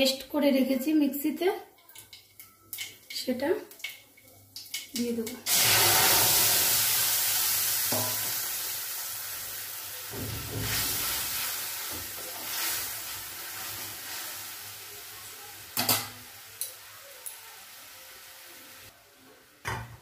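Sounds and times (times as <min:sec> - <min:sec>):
paste sizzling in hot oil: 0:04.0 - 0:19.0.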